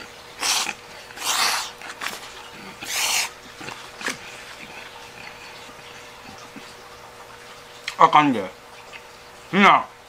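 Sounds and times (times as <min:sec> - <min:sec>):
spaghetti slurping: 0:00.0 - 0:06.8.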